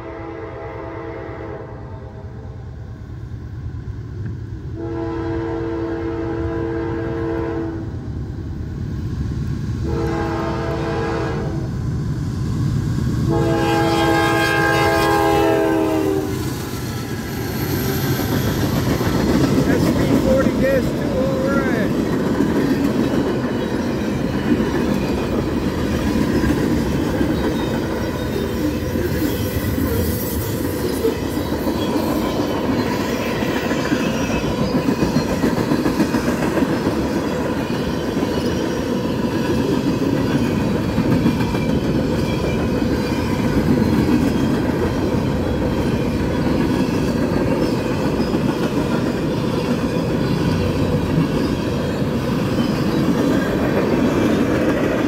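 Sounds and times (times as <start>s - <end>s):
train wheels clattering over rail joints: 16.4s - 29.4s, 30.5s - 55.0s.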